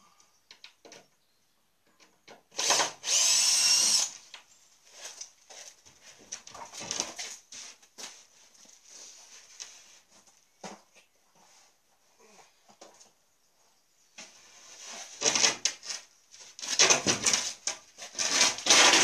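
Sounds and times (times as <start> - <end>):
cordless drill whining: 2.6 - 4.2
knocks and clatter on wood: 16.7 - 18.4.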